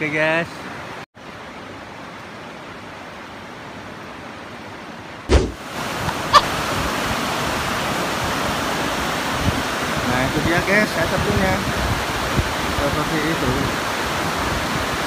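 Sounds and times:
thump: 0:05.3 - 0:05.6
waterfall rushing: 0:05.4 - 0:15.0.

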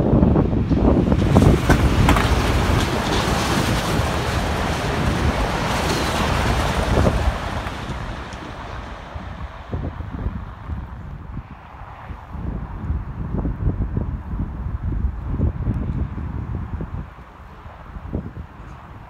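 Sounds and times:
high-speed train rushing past: 0:00.0 - 0:13.5
wind buffeting microphone: 0:00.0 - 0:19.0.

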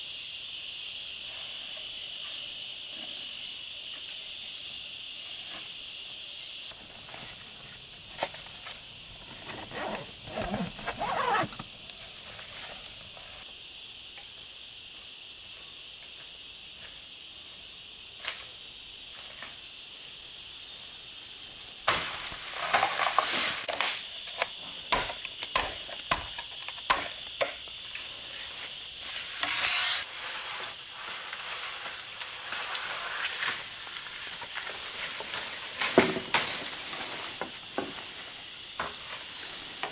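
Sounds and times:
insects chorus: 0:00.0 - 0:39.9
rustling and scraping: 0:06.7 - 0:13.4, 0:21.9 - 0:23.8, 0:28.0 - 0:39.9.

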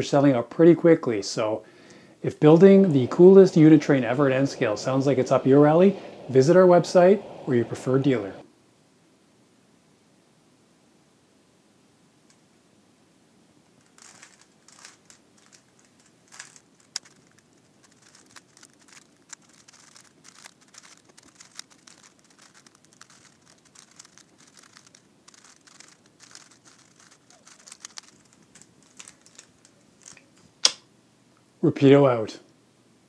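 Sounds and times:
rubik's cube clicking and rattling: 0:13.8 - 0:30.4.

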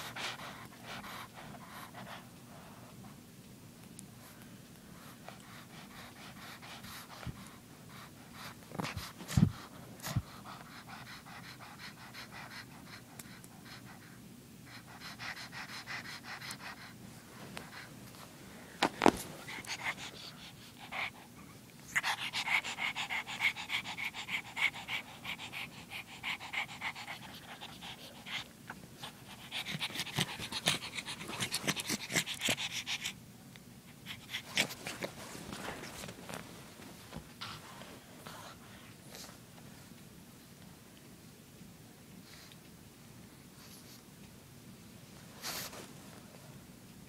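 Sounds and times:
puppy panting: 0:00.0 - 0:02.8, 0:04.9 - 0:18.3, 0:19.0 - 0:33.2, 0:33.9 - 0:36.4.

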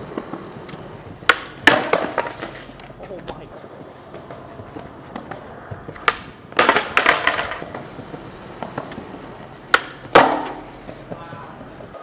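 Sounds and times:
skateboard landing slap: 0:00.0 - 0:02.9, 0:05.1 - 0:07.8, 0:09.6 - 0:11.2
skateboard wheels clacking: 0:00.0 - 0:12.0
skateboard tail pop: 0:00.2 - 0:02.9, 0:05.1 - 0:07.8, 0:09.7 - 0:11.2.

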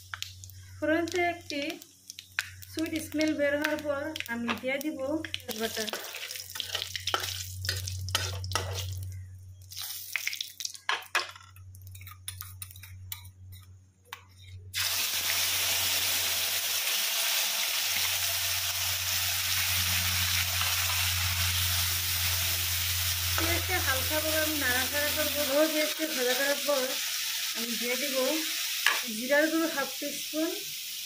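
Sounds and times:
loud oil sizzle: 0:00.0 - 0:10.9, 0:14.7 - 0:31.0
spices sizzling in oil: 0:00.0 - 0:11.0, 0:14.7 - 0:31.0
low hum: 0:06.9 - 0:09.7
metal spatula scraping pan: 0:08.1 - 0:09.0.

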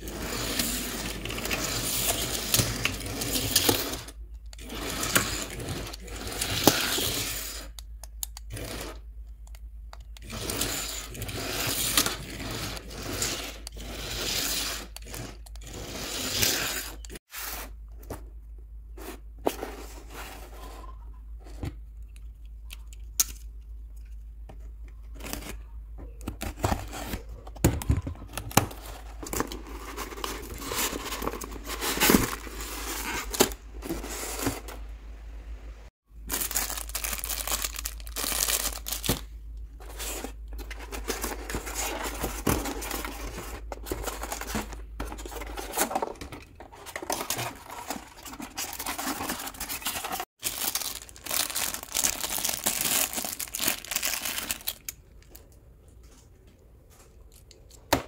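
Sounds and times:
packaging tearing and crinkling: 0:36.3 - 0:46.2, 0:46.8 - 0:55.0.

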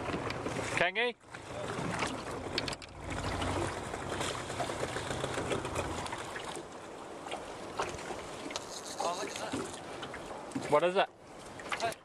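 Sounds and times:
water lapping against kayak hull: 0:00.0 - 0:12.0
small clicks and knocks: 0:02.5 - 0:03.0.

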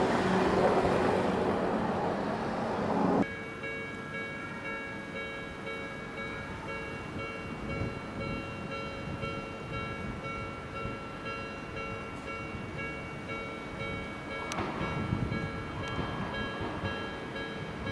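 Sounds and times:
train rolling along track: 0:00.0 - 0:17.9
steady ringing tones: 0:03.2 - 0:17.9.

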